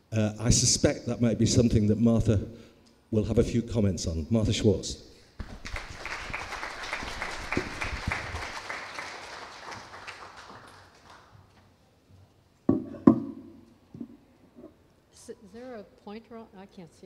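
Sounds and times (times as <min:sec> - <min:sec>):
audience applauding: 0:05.4 - 0:11.5.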